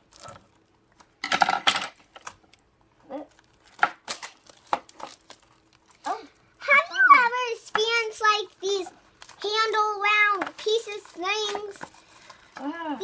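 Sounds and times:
hard plastic packaging snapping: 3.4 - 5.9.

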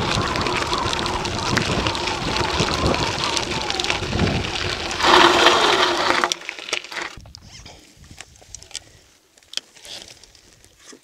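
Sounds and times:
bike tyres crunching on gravel: 0.0 - 7.2
gravel clicks and crunches: 0.0 - 11.0.

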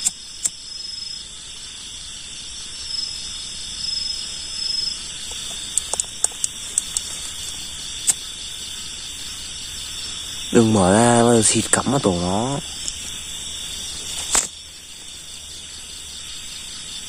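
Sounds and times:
sharp clicks: 0.0 - 0.6, 5.3 - 7.1, 8.0 - 8.2
crickets trilling: 0.0 - 17.0.

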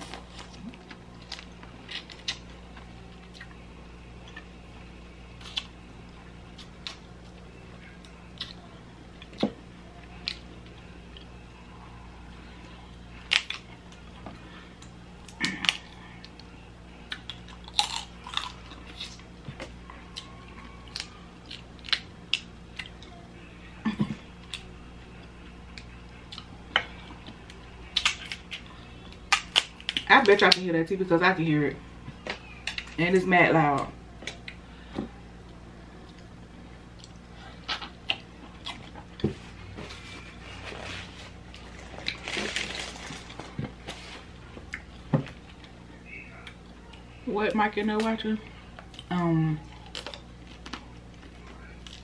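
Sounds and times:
person chewing: 5.4 - 5.7, 8.0 - 8.6, 17.1 - 19.2, 20.1 - 23.1, 36.9 - 39.9, 49.7 - 52.0.

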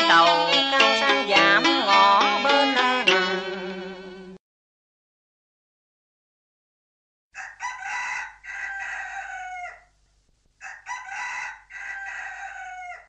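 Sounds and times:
rooster crowing: 7.4 - 10.0, 10.6 - 13.0.

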